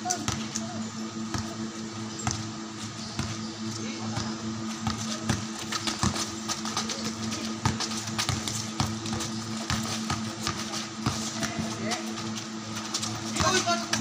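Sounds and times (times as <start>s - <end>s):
basketball bouncing on concrete: 0.0s - 0.5s, 1.3s - 1.6s, 2.2s - 2.5s, 3.2s - 3.4s, 4.0s - 12.2s, 12.8s - 14.0s
players' footfalls: 4.1s - 14.0s.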